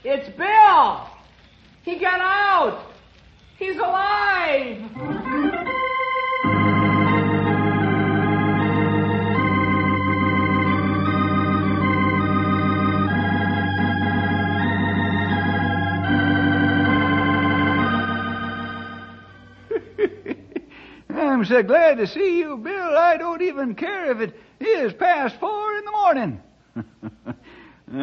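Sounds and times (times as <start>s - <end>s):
sustained organ chords: 4.9s - 20.4s.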